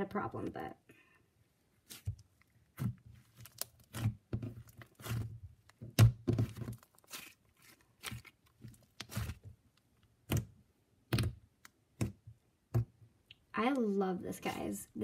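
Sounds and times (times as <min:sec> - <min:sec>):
slime crackling and popping: 0:01.9 - 0:10.5.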